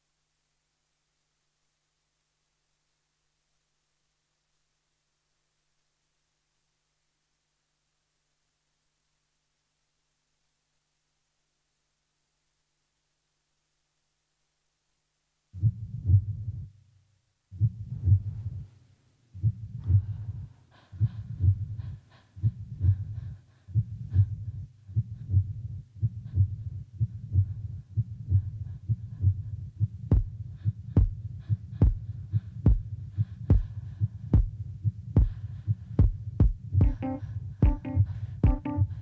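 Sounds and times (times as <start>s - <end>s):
heartbeat double thumps: 15.6s - 16.7s, 17.5s - 18.6s, 19.4s - 39.0s.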